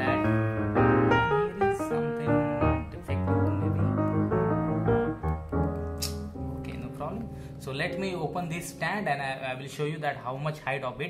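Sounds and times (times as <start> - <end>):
piano background music: 0.0 - 11.0.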